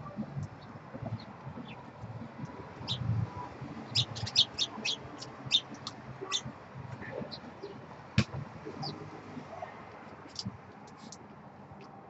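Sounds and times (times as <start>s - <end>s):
small birds chirping: 0.1s - 7.8s, 8.7s - 9.1s.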